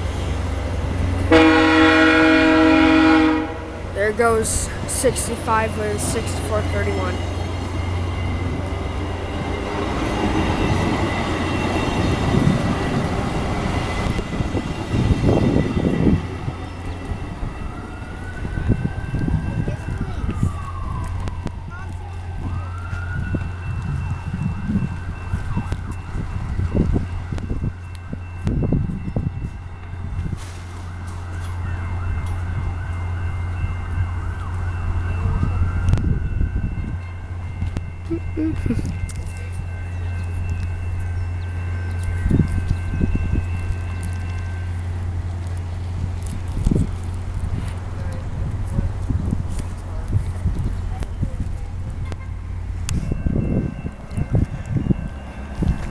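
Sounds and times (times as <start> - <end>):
train wheels rumbling on rail: 0.0 - 55.9
distant siren wailing: 0.2 - 38.7.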